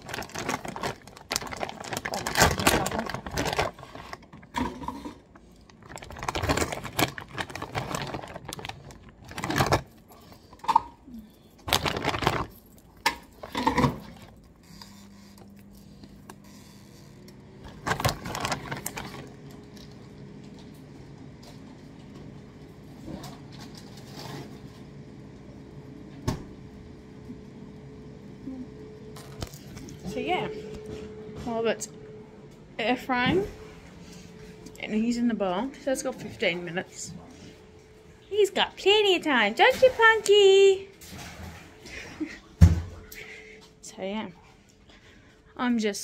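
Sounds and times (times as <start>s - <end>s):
plastic bag crinkling: 0.0s - 14.4s, 17.6s - 19.9s
air fryer humming: 0.0s - 39.6s.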